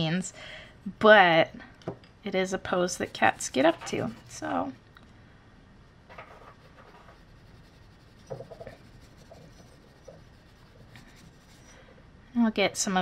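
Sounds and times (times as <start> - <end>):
pencil scratching on paper: 2.8 - 4.8, 6.3 - 11.7.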